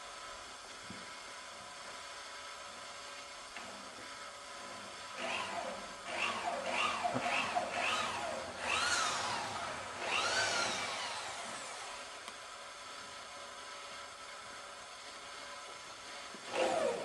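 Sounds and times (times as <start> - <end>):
electric drill motor whining: 5.0 - 17.0.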